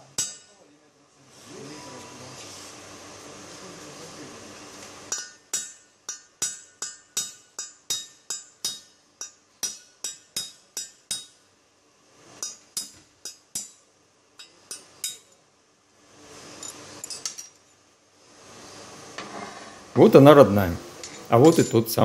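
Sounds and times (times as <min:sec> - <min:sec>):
hammer striking metal: 0:00.0 - 0:00.6, 0:05.1 - 0:11.4, 0:12.4 - 0:15.4.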